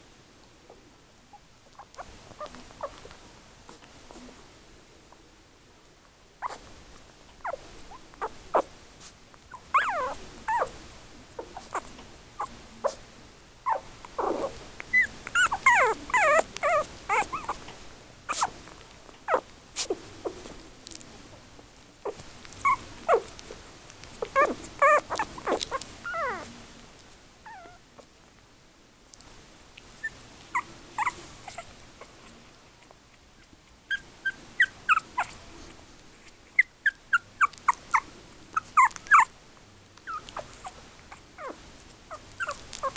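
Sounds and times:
puppies whimpering: 0:09.5 - 0:10.7, 0:13.7 - 0:17.6, 0:24.2 - 0:26.5, 0:30.0 - 0:31.7, 0:33.9 - 0:35.4, 0:36.6 - 0:39.3, 0:40.1 - 0:42.9.

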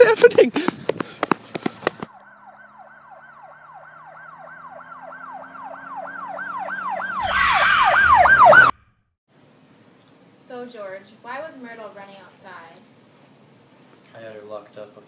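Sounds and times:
siren yelping: 0:02.1 - 0:08.8.

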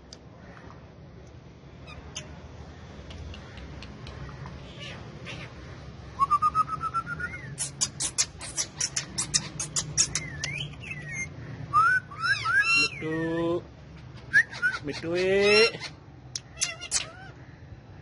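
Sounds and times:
parrot whistling and chattering: 0:06.2 - 0:13.1, 0:14.0 - 0:17.3.

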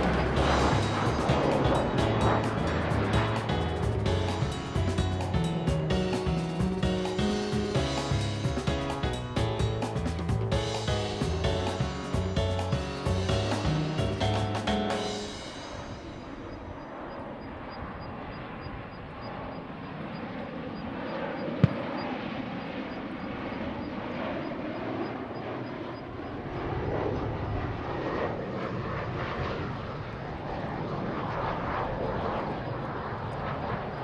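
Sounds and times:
jet engine rushing: 0:00.0 - 0:34.0.

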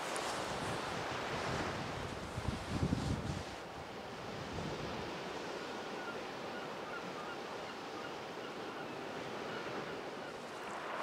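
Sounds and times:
sea waves washing on shore: 0:00.0 - 0:11.0.

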